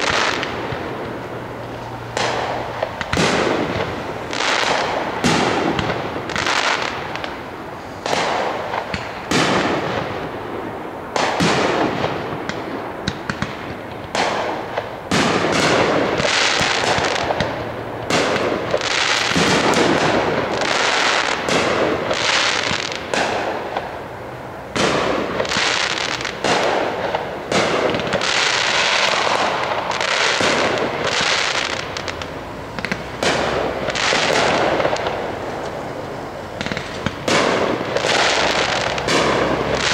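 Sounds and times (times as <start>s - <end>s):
firework shells bursting: 0.0s - 10.3s, 24.7s - 39.9s.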